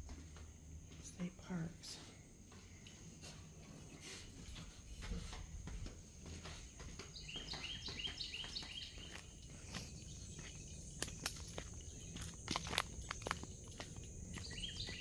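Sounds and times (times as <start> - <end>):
insect drone: 9.2 - 15.0.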